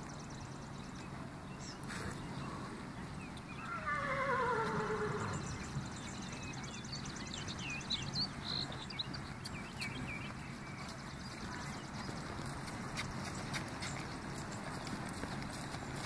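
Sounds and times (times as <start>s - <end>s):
outdoor background hiss: 0.0s - 10.7s
small birds chirping: 0.0s - 16.0s
faint hoof strikes: 9.3s - 16.0s.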